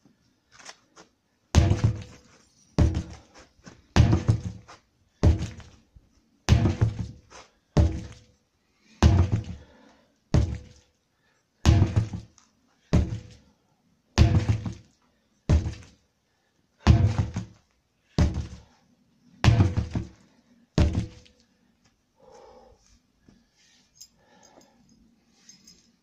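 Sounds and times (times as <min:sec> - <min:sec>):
sledgehammer striking tyres: 0:01.6 - 0:03.2, 0:04.0 - 0:05.7, 0:06.5 - 0:08.2, 0:09.0 - 0:09.7, 0:10.4 - 0:10.8, 0:11.6 - 0:12.3, 0:12.9 - 0:13.4, 0:14.2 - 0:14.9, 0:15.5 - 0:15.8, 0:16.9 - 0:17.6, 0:18.2 - 0:18.6, 0:19.4 - 0:20.2, 0:20.8 - 0:21.3.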